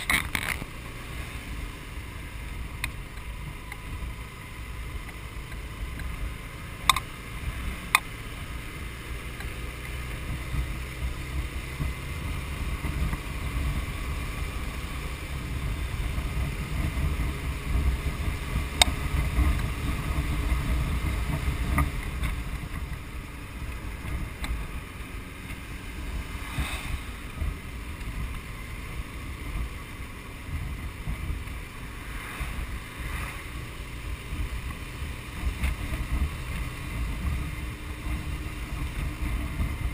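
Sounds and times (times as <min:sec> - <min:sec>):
motorcycle rumble: 0:00.0 - 0:39.9
wind rush: 0:19.2 - 0:29.7, 0:30.5 - 0:37.6.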